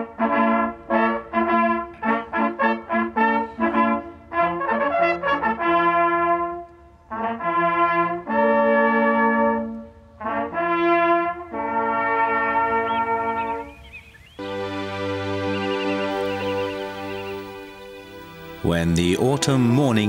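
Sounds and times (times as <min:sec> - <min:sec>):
hunting horns brass fanfare: 0:00.0 - 0:13.8, 0:14.4 - 0:20.0.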